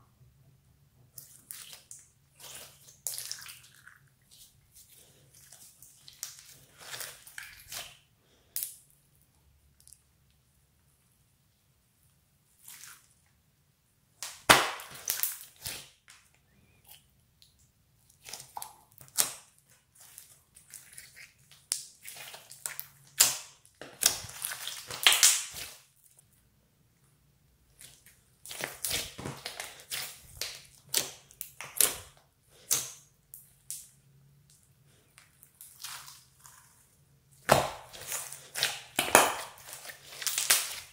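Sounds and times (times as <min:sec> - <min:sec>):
wet slime popping and crackling: 0:14.2 - 0:16.3, 0:18.1 - 0:25.9, 0:27.8 - 0:34.0, 0:37.4 - 0:40.9.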